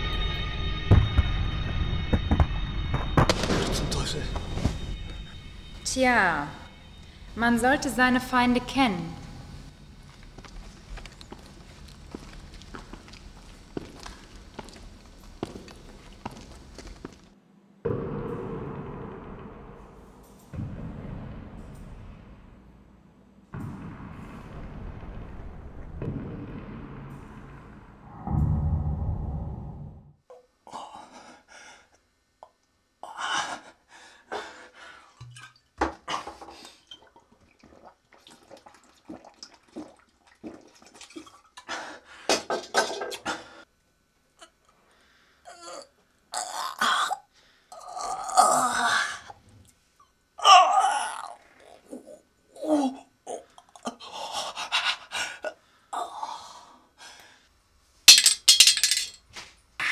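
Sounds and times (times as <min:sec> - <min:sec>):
low rumble: 0:17.8 - 0:30.2.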